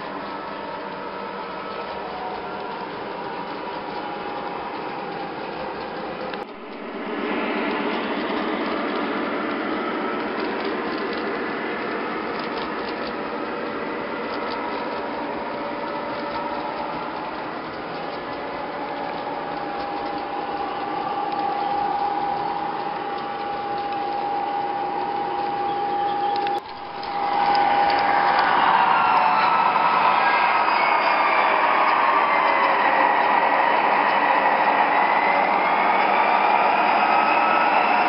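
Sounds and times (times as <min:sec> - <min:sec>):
model train motors whirring: 0:00.0 - 0:38.0
steady high whine: 0:00.0 - 0:38.0
wheels rattling over rails: 0:00.0 - 0:38.0.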